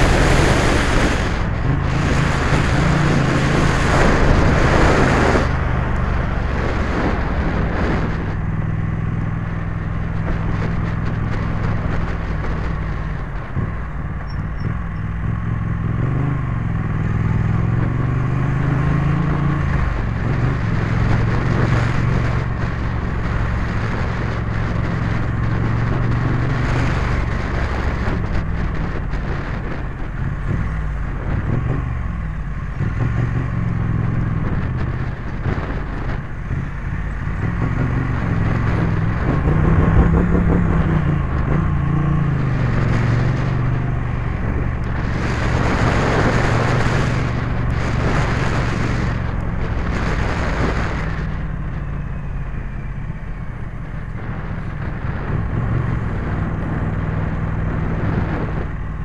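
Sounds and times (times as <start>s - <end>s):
motorcycle engine revving: 0.0s - 59.0s
bursts of rushing noise: 36.9s - 51.8s.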